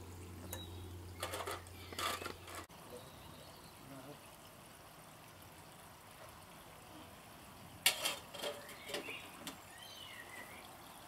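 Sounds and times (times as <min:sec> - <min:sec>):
bird chirping: 0:00.0 - 0:04.1, 0:08.5 - 0:11.0.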